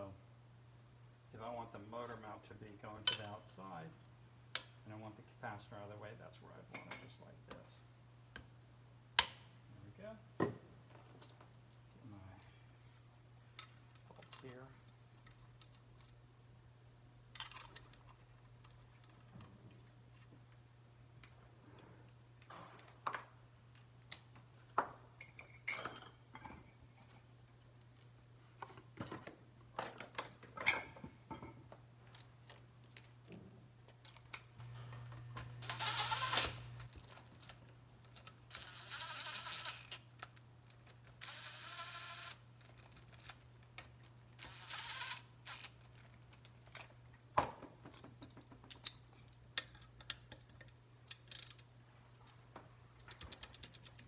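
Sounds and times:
cordless driver running: 34.6 - 36.9.

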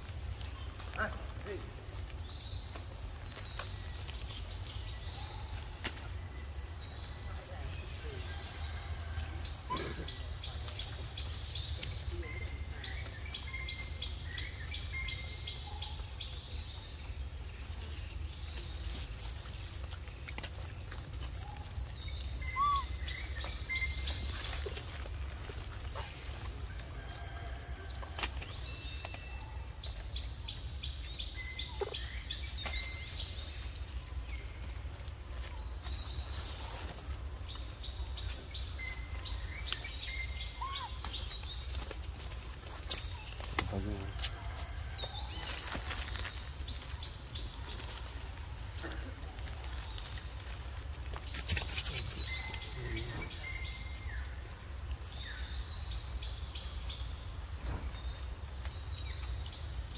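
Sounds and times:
bird chirps: 21.6 - 24.8.

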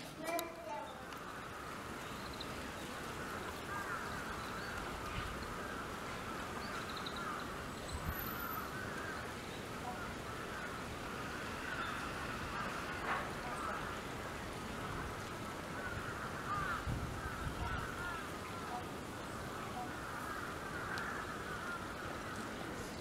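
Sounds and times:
birds calling: 0.0 - 23.0
outdoor background hiss: 0.0 - 23.0
faint clicks: 0.2 - 1.3, 20.8 - 23.0.

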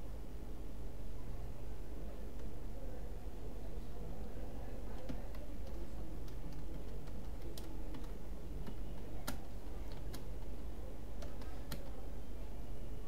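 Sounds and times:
keyboard keystroke clicks: 4.9 - 10.6, 11.2 - 12.0.

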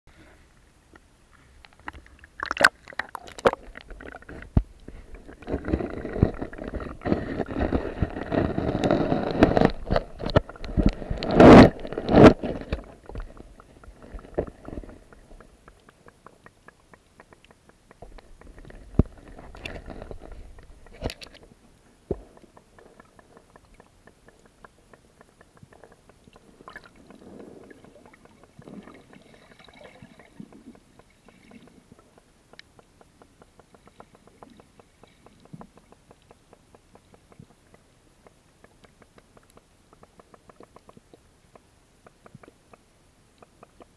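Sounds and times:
underwater ambience: 0.2 - 43.9
water sloshing and gurgling: 1.7 - 16.8, 17.9 - 32.2.

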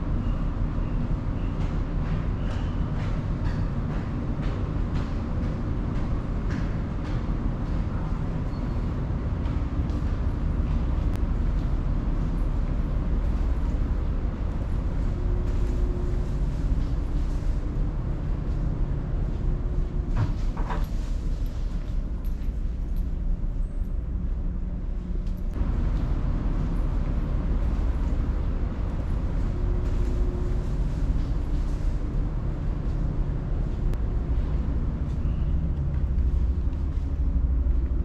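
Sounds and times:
vehicle engine rumble: 0.0 - 38.0
faint hum: 6.4 - 38.0.

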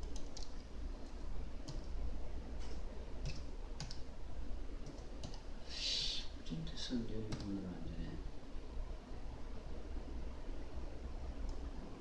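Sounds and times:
sharp clicks: 2.7 - 4.0, 4.8 - 5.4.

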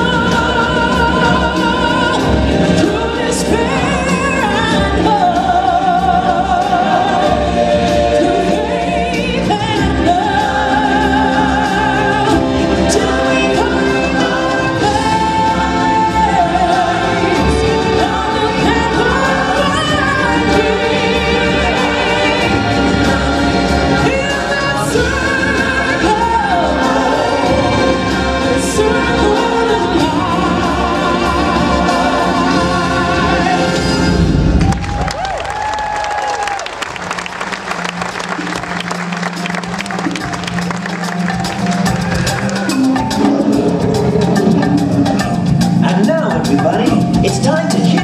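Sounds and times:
choir singing with accompaniment: 0.0 - 34.9, 37.0 - 48.0.

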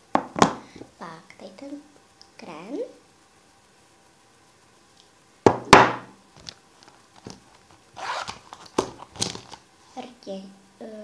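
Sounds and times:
cosmetic bag rustling and scraping: 6.4 - 9.6.

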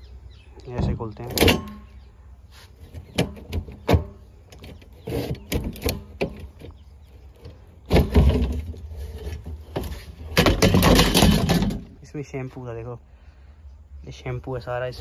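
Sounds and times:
plastic lid scraping rattle: 2.8 - 6.8, 7.4 - 11.9.

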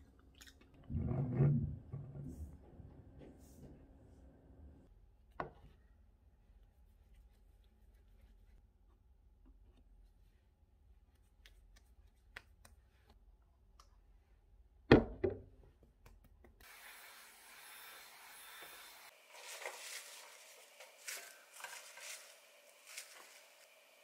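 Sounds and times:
hot-air brush blowing: 16.6 - 24.0
brush rustling through hair: 19.1 - 23.8.

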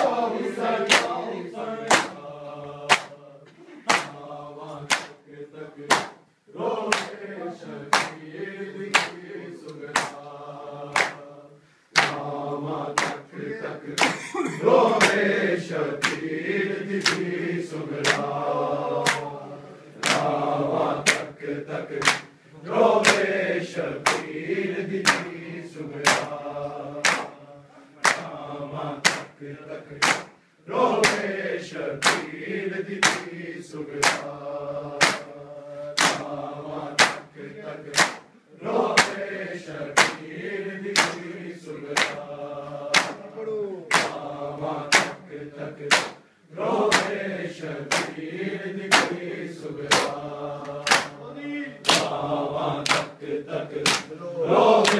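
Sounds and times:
men chanting together: 0.0 - 54.9
hands slapping chests: 0.8 - 1.2, 1.8 - 2.2, 2.9 - 3.2, 3.8 - 4.2, 4.8 - 5.2, 5.8 - 6.2, 6.9 - 7.2, 7.9 - 8.3, 8.9 - 10.3, 10.9 - 11.2, 11.9 - 12.3, 13.0 - 13.3, 13.9 - 14.3, 14.9 - 15.3, 16.0 - 16.3, 16.9 - 18.4, 19.0 - 19.3, 20.0 - 20.4, 21.0 - 22.4, 23.0 - 23.4, 24.0 - 24.4, 25.0 - 25.4, 26.0 - 26.4, 27.0 - 27.4, 28.0 - 28.4, 29.0 - 29.4, 30.0 - 30.4, 31.0 - 31.3, 32.0 - 32.3, 33.0 - 34.4, 35.0 - 35.3, 36.0 - 36.3, 37.0 - 38.3, 39.0 - 39.2, 40.0 - 40.3, 41.0 - 42.3, 42.9 - 43.3, 43.9 - 44.3, 44.9 - 45.2, 45.8 - 46.2, 46.9 - 47.2, 47.9 - 48.3, 48.9 - 49.2, 49.8 - 51.2, 51.8 - 52.2, 52.8 - 54.2.

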